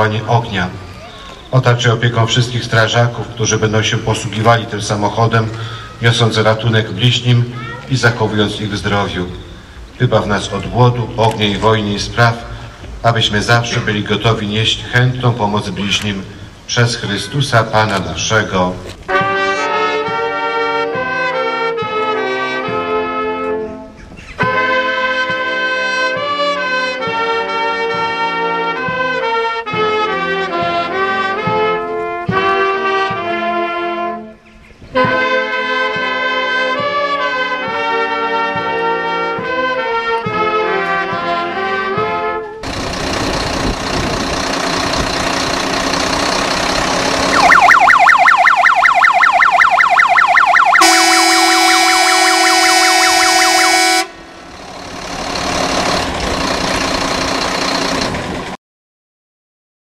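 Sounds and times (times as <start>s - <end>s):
brass band playing: 19.0s - 42.6s, 47.1s - 54.3s
loud steady rushing noise: 42.6s - 56.7s
electronic siren warbling: 47.2s - 54.1s.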